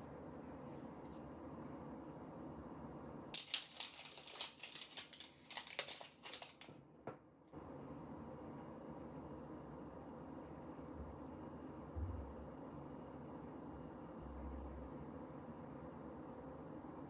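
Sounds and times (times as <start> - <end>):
plastic wrapping crinkling: 3.4 - 6.8.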